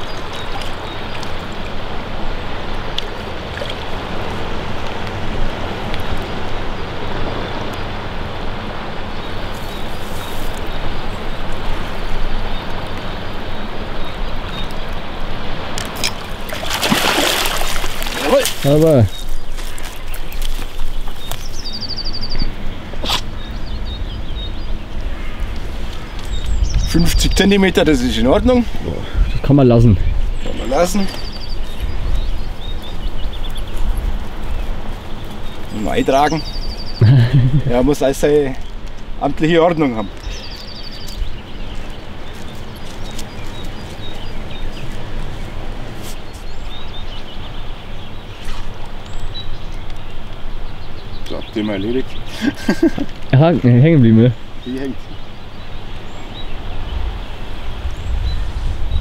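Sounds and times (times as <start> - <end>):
river rushing: 0.0 - 23.6
songbird trilling and chirping: 17.4 - 38.8, 39.5 - 58.6
bird chirps: 18.2 - 25.4, 29.1 - 37.6
steady low rumble: 55.0 - 59.0.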